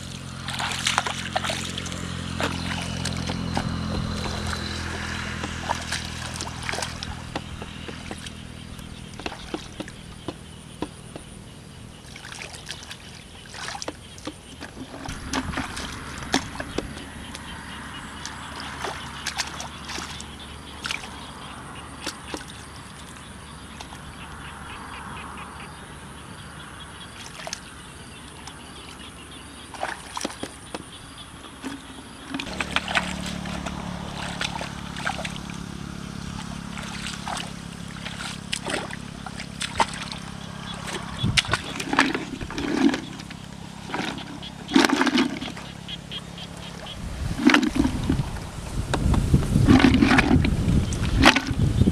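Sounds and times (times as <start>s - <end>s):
hands splashing in muddy water: 0.0s - 10.0s, 12.0s - 17.1s, 18.2s - 21.2s, 29.7s - 30.6s, 32.4s - 35.7s, 36.3s - 45.7s.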